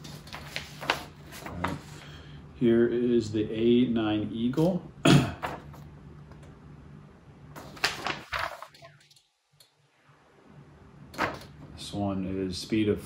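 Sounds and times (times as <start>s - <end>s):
paper sheets rustling: 0.0s - 2.2s, 7.6s - 9.2s.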